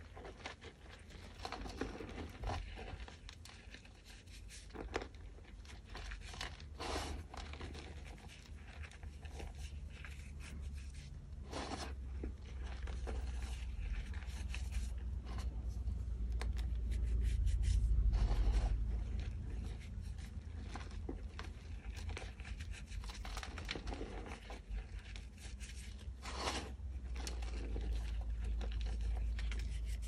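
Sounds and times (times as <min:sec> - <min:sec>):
hands crumbling chalk: 0:00.0 - 0:30.0
low rumble: 0:12.1 - 0:22.3.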